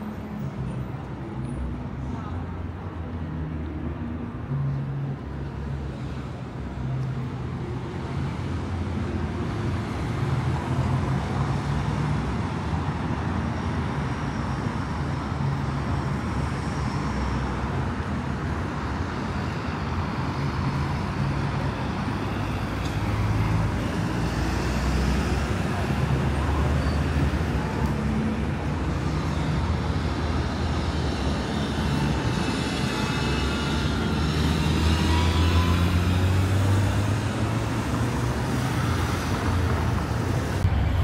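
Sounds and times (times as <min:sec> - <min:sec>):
car traffic passing: 0:14.1 - 0:41.0.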